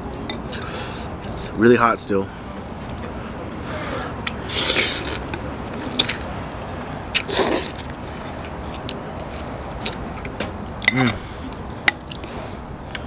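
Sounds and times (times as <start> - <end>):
person slurping noodles: 3.8 - 5.2, 7.2 - 7.9.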